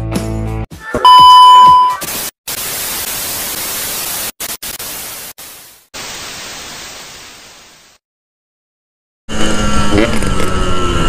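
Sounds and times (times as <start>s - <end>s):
test-tone beep: 1.0s - 2.0s.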